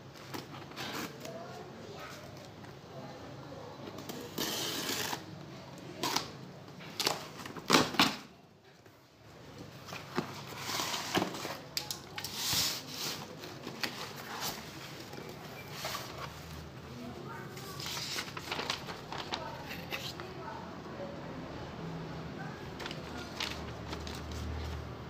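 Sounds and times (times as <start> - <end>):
cardboard and tape scraping: 0.3 - 1.4, 4.0 - 5.3, 9.9 - 16.6.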